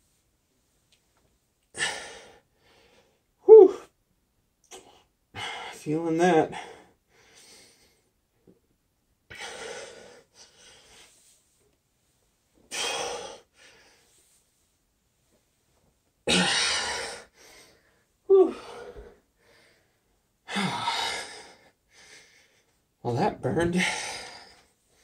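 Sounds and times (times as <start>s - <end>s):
man groaning: 3.5s - 3.9s, 16.3s - 16.9s, 18.3s - 18.8s
man breathing hard: 9.3s - 11.2s, 16.3s - 22.8s.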